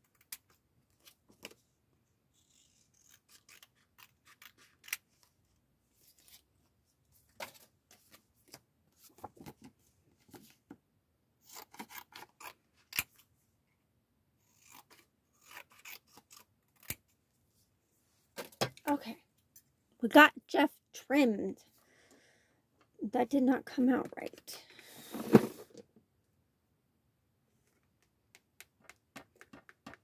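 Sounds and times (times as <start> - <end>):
scissors snipping paper: 2.4 - 5.3, 14.5 - 17.1.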